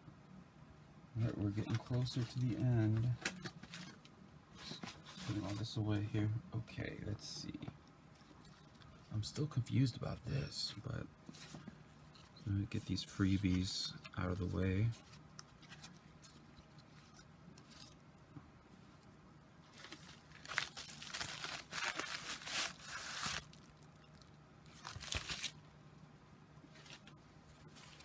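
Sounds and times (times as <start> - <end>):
faint low hum: 0.0 - 28.0
packaging rustling and crinkling: 1.5 - 5.8, 19.6 - 25.6, 26.7 - 28.0.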